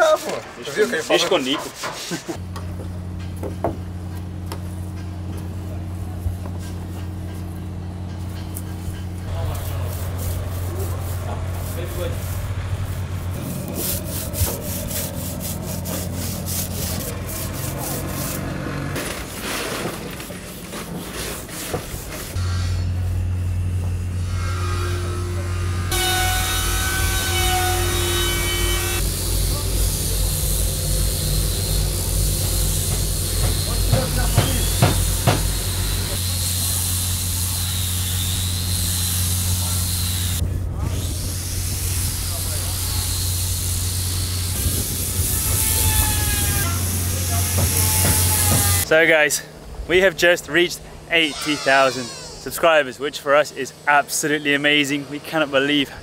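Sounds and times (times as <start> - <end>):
hand tool rubbing on wooden hull: 8.7 - 22.4
motor humming: 22.4 - 48.9
sharp knocks: 32.9 - 35.6.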